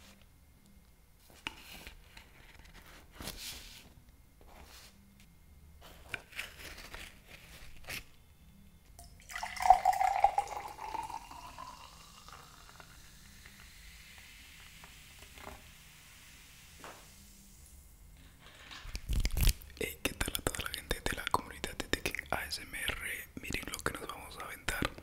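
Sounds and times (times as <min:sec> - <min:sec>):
drink pouring into glass: 0:09.0 - 0:13.6.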